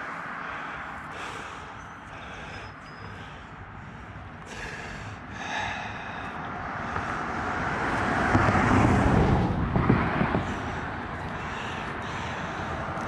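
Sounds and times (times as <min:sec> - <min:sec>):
car passing by: 0:04.5 - 0:13.0.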